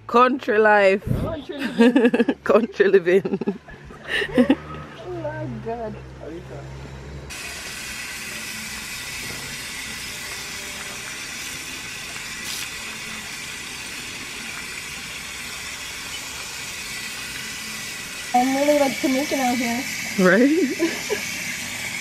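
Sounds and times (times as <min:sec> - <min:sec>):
water hissing from tap: 0:07.3 - 0:22.0.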